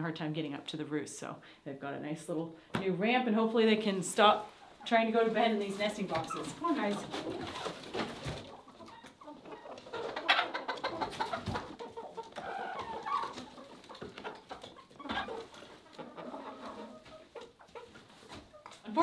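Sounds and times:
chickens clucking: 3.9 - 19.0.

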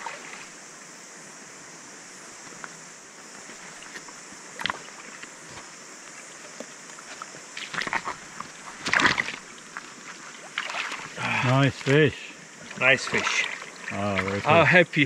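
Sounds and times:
stream rushing: 7.4 - 15.0
fish splashing in water: 7.6 - 12.0, 12.6 - 14.5.

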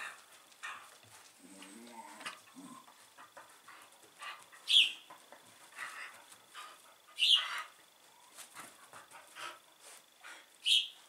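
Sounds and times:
dogs scuffling on carpet: 8.1 - 10.4.

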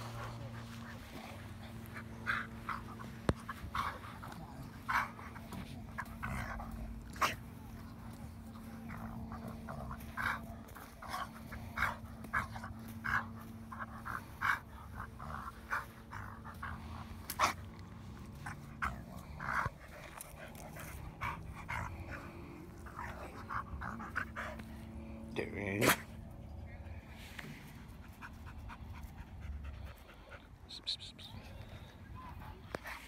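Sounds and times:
dog breathing: 0.0 - 25.4
grass rustling: 0.0 - 26.3.

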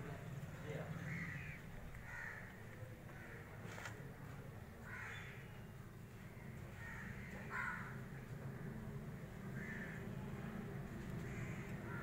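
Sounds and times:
crows cawing: 0.9 - 3.6, 4.8 - 5.5, 6.4 - 8.1, 9.5 - 10.0, 11.2 - 12.0
steady low hum: 5.5 - 12.0.

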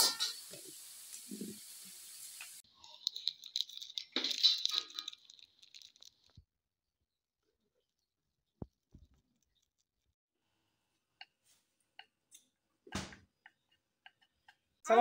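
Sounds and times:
foil sachets crinkling: 2.9 - 6.4.

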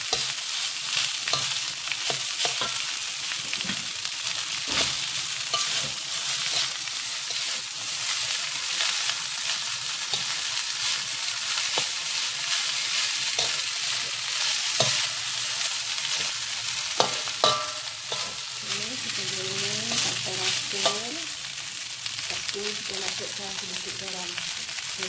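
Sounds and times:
rice sizzling in a wok: 0.0 - 25.0
spatula scraping and knocking a wok: 0.1 - 3.9, 4.6 - 18.6.

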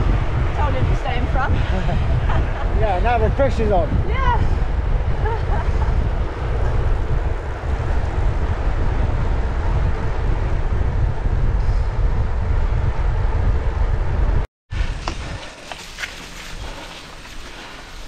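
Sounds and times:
wind rumbling over microphone: 0.0 - 18.0
tyre noise on tarmac: 14.7 - 18.0.

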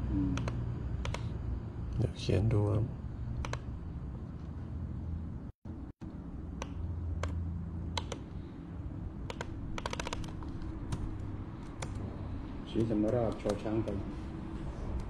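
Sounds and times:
steady low hum: 0.0 - 15.0
computer keyboard typing: 3.4 - 3.7, 6.6 - 8.3, 9.2 - 12.1, 12.7 - 14.0.

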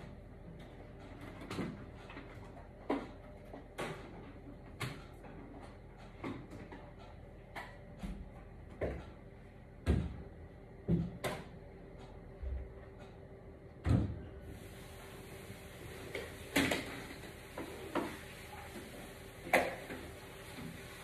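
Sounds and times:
knocks and thuds in a room: 2.8 - 11.6, 13.7 - 14.4.

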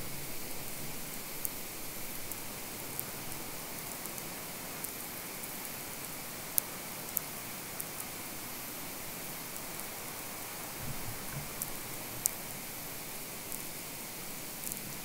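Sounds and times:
electromagnetic static hiss: 0.0 - 15.0
sharp crackling clicks: 13.4 - 13.8, 14.6 - 15.0.

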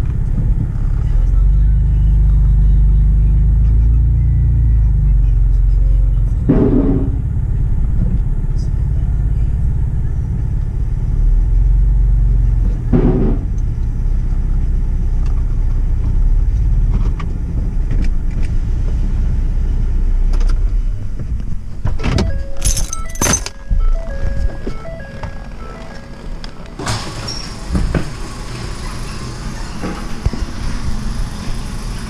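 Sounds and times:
truck engine rumble: 0.0 - 32.0
sharp clunks: 6.5 - 7.3, 12.9 - 13.6
two-tone door chime: 22.0 - 27.9.

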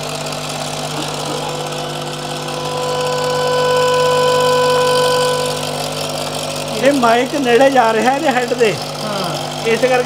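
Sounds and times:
film projector whirring: 0.0 - 10.0
steady pitched tone: 0.5 - 7.6.

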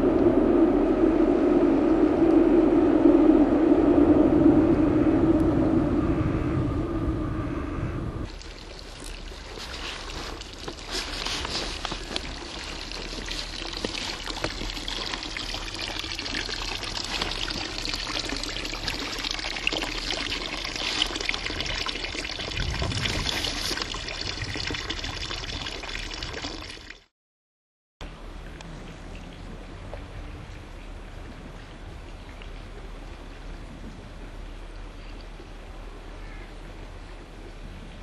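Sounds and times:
water splashing into basin: 8.3 - 27.0.

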